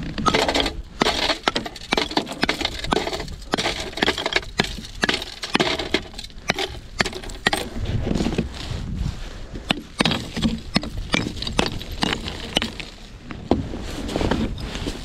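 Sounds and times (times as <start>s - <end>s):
hard objects knocking and clinking: 0.1s - 7.8s, 9.7s - 12.9s.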